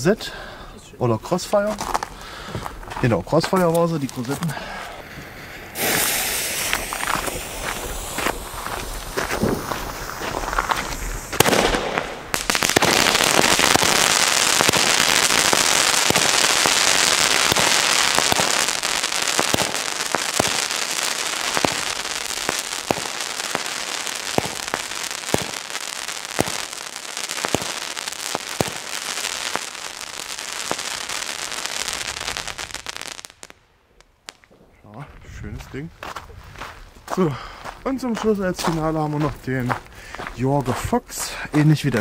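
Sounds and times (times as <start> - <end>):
firework hissing crackle: 5.0 - 34.6
firework sharp cracks: 5.7 - 34.7
firework pops: 5.8 - 25.8, 26.4 - 26.7, 27.4 - 28.9.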